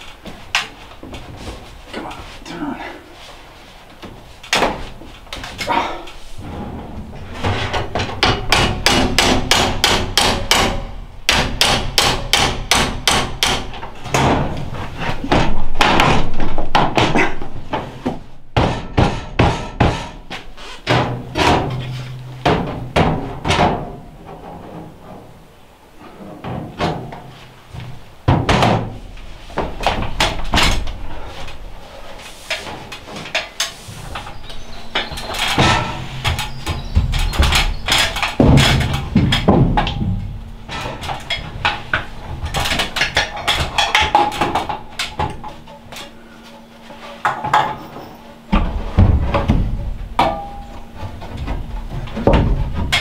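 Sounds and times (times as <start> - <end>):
hammer striking steel pipe: 50.2 - 50.8.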